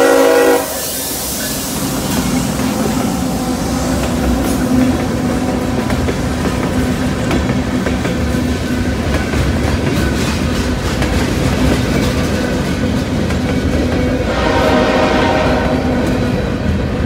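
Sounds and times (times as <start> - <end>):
train horn: 0.0 - 1.0, 14.2 - 16.3
train wheels rumbling on rails: 0.0 - 17.0.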